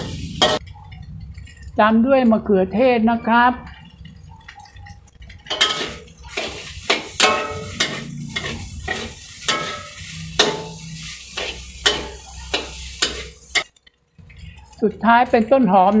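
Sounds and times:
metal ladle scraping a wok: 0.0 - 1.7, 3.8 - 13.7
pan sizzling: 0.0 - 16.0.

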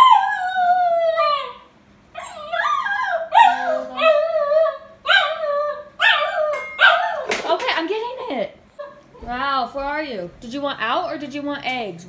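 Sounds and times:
puppy whining: 0.0 - 7.3.

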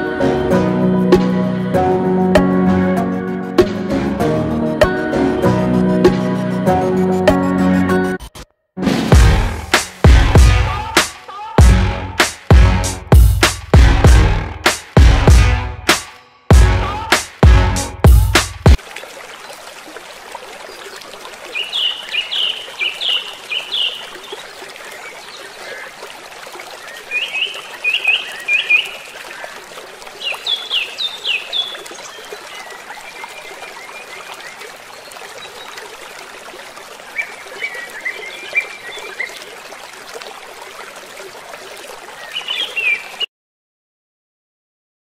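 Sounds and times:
river water flowing over rocks: 18.4 - 43.3
songbird chirping: 21.5 - 26.0, 26.7 - 29.6, 30.2 - 35.8, 37.1 - 39.5, 42.2 - 43.3.

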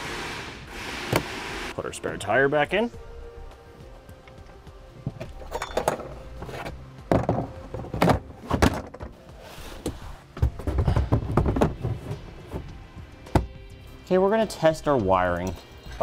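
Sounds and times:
plastic panels clattering: 7.1 - 9.2
thunks and knocks: 7.1 - 9.2, 10.4 - 13.6.

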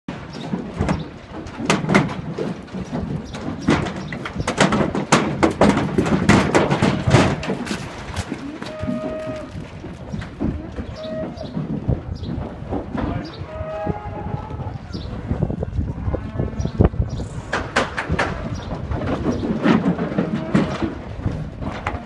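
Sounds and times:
cow hooves clattering on ramp: 0.1 - 22.0.

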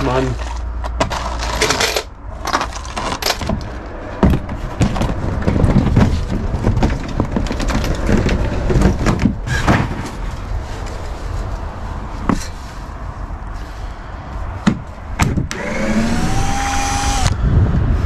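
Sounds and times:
roof panels knocking and clattering: 2.5 - 10.5
low rumble: 16.0 - 18.0.

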